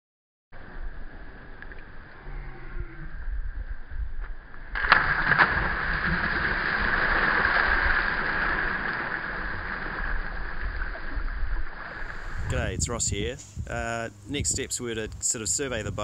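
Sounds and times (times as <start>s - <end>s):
people splashing in water: 4.8s - 12.4s.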